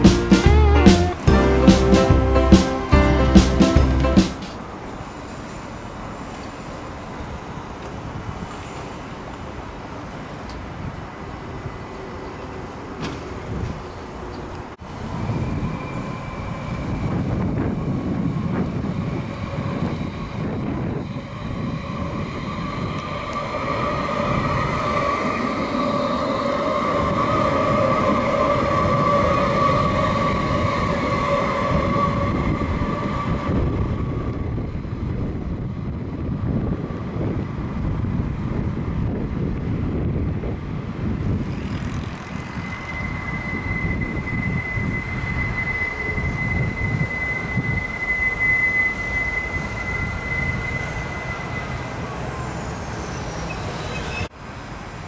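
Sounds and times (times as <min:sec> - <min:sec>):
tram wheels rumbling: 0:00.0 - 0:55.0
steady high whine: 0:40.9 - 0:54.3.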